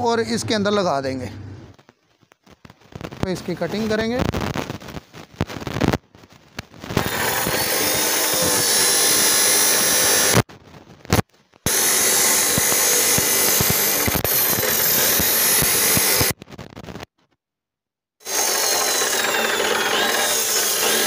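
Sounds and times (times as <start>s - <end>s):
angle grinder cutting steel: 7.0s - 10.4s, 11.7s - 16.4s, 18.2s - 21.0s.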